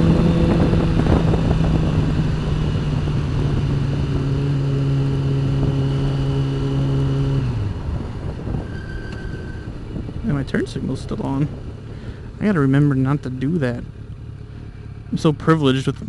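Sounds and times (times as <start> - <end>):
wind noise on microphone: 0.0 - 12.5
motorcycle engine running: 0.0 - 16.0.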